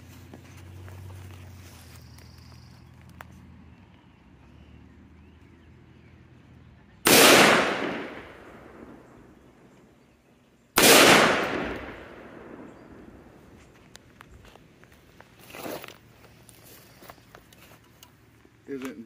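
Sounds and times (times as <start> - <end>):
rifle shots echoing: 7.0 - 9.3, 10.8 - 13.4.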